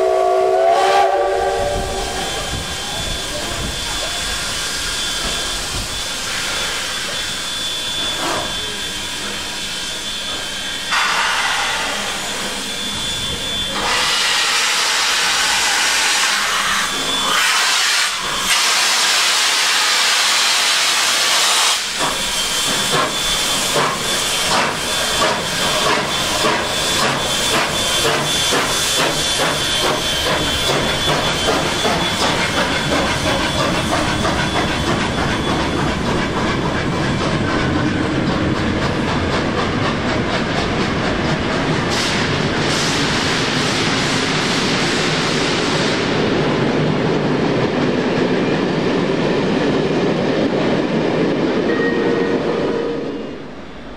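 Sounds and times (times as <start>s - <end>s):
loud blast of steam: 0.0s - 35.8s, 41.8s - 47.0s
steam hissing: 0.0s - 47.4s
steam locomotive exhaust chuffs: 0.0s - 50.2s.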